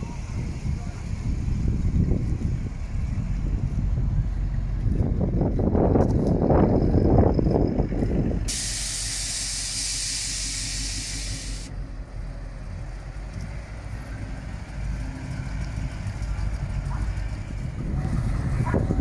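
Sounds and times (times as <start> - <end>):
car engines rumbling: 0.0 - 19.0
steady hiss: 8.5 - 11.7.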